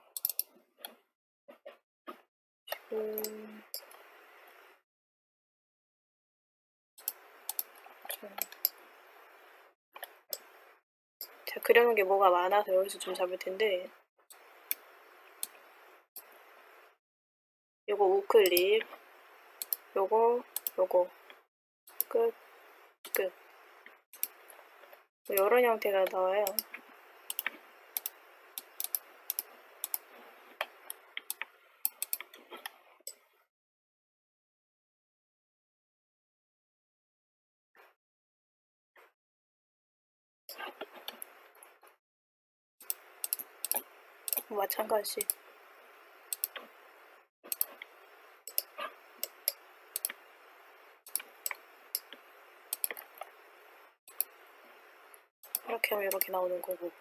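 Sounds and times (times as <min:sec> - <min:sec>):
computer mouse clicking: 0:00.2 - 0:00.5, 0:02.7 - 0:04.6, 0:07.0 - 0:08.8, 0:10.0 - 0:10.6, 0:18.4 - 0:19.0, 0:19.6 - 0:19.9, 0:20.5 - 0:22.2, 0:24.2 - 0:32.7, 0:42.8 - 0:45.5, 0:46.3 - 0:46.8, 0:47.5 - 0:50.2, 0:51.1 - 0:53.4, 0:54.1 - 0:54.4, 0:55.4 - 0:56.8
faint steady hiss: 0:07.0 - 0:17.0, 0:42.8 - 0:57.0.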